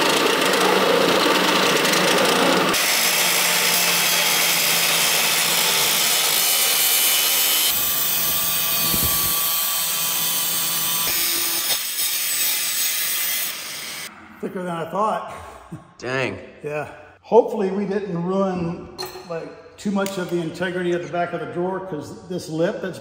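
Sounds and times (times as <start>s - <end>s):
shop vacuum running: 0.0s - 11.8s
power drill boring steel: 0.0s - 14.1s.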